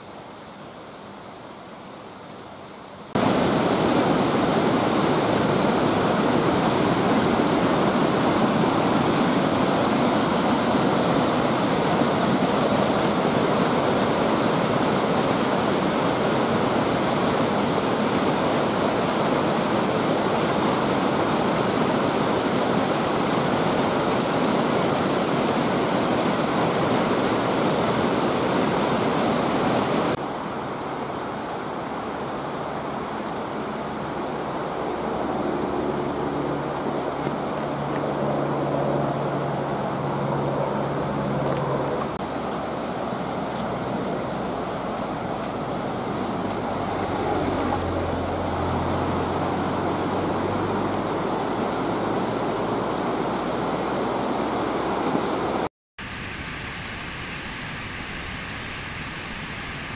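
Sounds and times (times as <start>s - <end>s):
water rushing over rocks: 3.2s - 56.2s.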